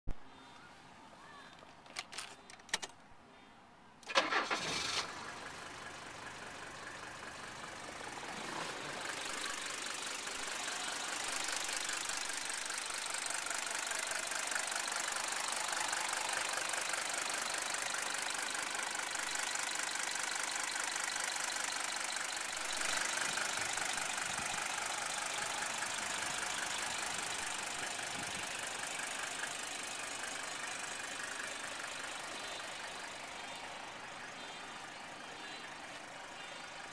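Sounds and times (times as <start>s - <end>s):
starter clicks: 1.6s - 3.0s
diesel engine starting and idling: 4.0s - 36.9s.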